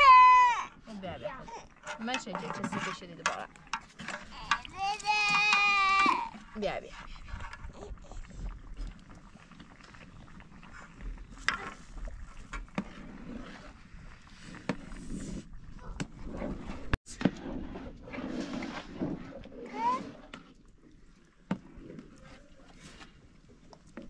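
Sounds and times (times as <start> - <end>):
metal spoons scraping frying pan: 1.4 - 4.7.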